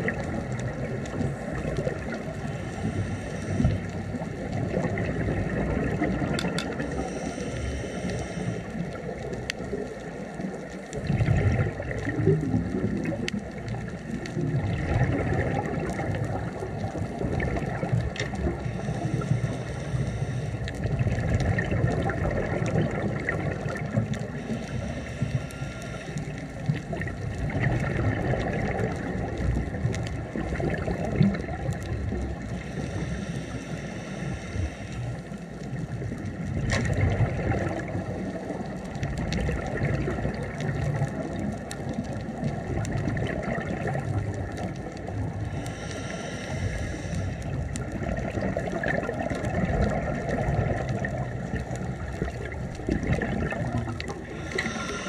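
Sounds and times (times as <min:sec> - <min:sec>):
bubbles gurgling underwater: 0:00.0 - 0:07.3, 0:08.0 - 0:33.3, 0:35.3 - 0:45.9, 0:46.7 - 0:55.0
diver breathing through regulator: 0:01.2 - 0:04.2, 0:06.7 - 0:09.2, 0:18.3 - 0:21.4, 0:24.2 - 0:27.1, 0:32.2 - 0:36.0, 0:45.3 - 0:48.2, 0:53.0 - 0:55.0.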